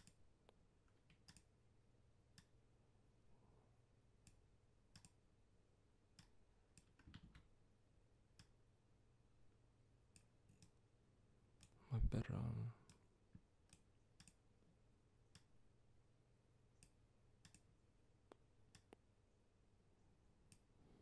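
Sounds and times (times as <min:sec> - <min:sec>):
low steady hum: 0:00.0 - 0:21.0
mouse and keyboard clicks: 0:16.8 - 0:17.7.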